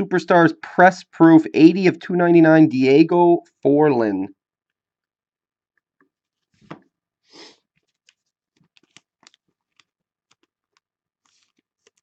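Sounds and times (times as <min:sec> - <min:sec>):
trading cards being shuffled: 0:07.7 - 0:12.0.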